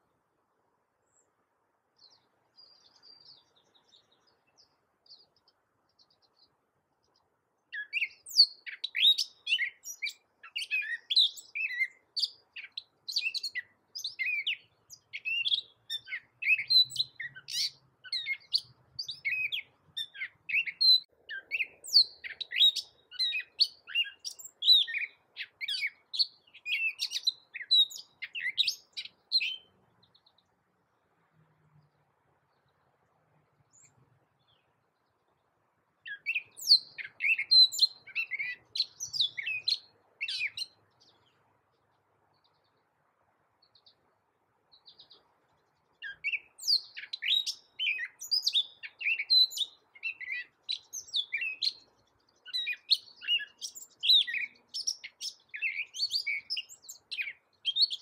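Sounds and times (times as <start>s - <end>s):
songbird singing varied notes: 0.0s - 58.0s.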